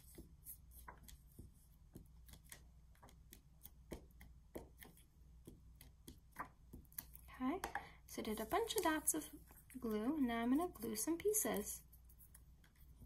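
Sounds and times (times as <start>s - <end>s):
glue stick tapping on card: 0.9s - 7.8s.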